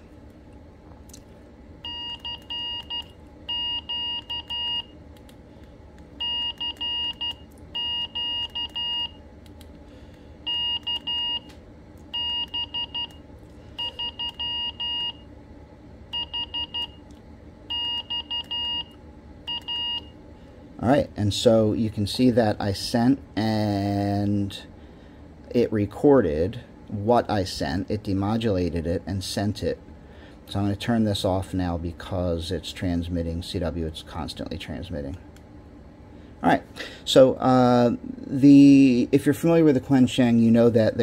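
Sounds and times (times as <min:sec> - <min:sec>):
morse code beeps: 0:01.8 - 0:04.9, 0:06.2 - 0:09.2, 0:10.5 - 0:11.5, 0:12.2 - 0:13.2, 0:13.8 - 0:15.2, 0:16.1 - 0:17.0, 0:17.7 - 0:20.1.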